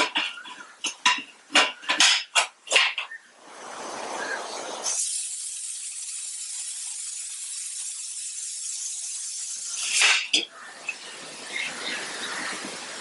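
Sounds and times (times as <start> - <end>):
steam hissing: 4.8 - 11.5.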